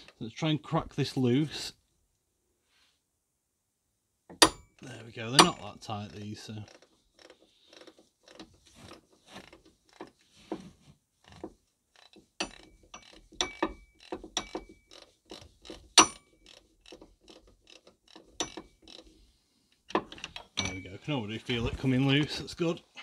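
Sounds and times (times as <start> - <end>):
ratchet wrench clicking: 12.0 - 19.2.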